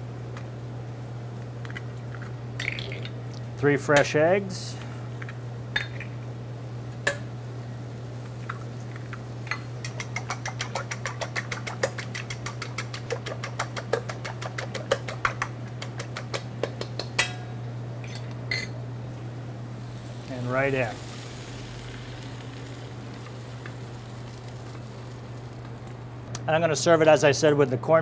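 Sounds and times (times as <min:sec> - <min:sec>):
whisk ticking on metal bowl: 0:09.8 - 0:17.1
taps on bowl: 0:12.5 - 0:17.5.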